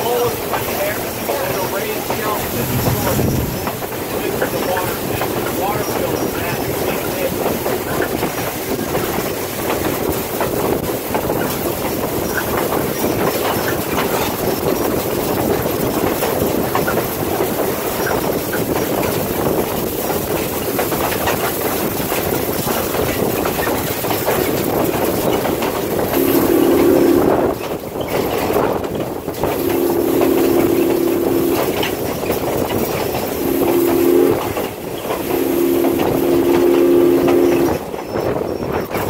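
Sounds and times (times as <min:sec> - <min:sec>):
train rumble and rattle: 0:00.0 - 0:39.0
wheels clicking over rail joints: 0:00.0 - 0:39.0
steady low tone: 0:02.1 - 0:04.6.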